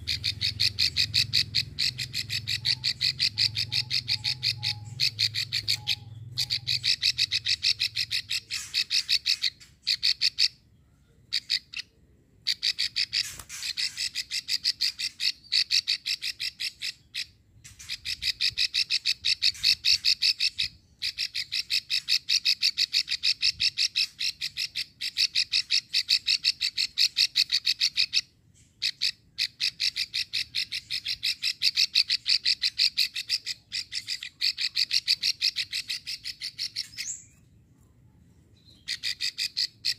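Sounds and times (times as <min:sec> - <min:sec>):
bird rattling call: 0:00.0 - 0:10.5, 0:12.5 - 0:28.2.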